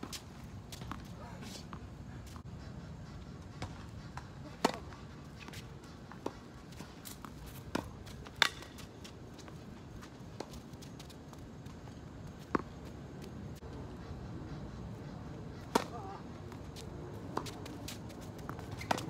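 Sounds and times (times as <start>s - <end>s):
racket hitting tennis ball: 4.5s - 9.5s, 15.6s - 19.0s
tennis ball bouncing: 7.0s - 9.6s, 15.6s - 19.0s.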